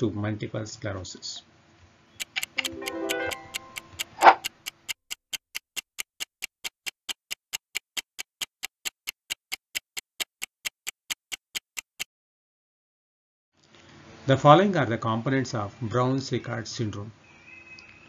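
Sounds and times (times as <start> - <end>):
clock ticking: 2.2 - 12.1.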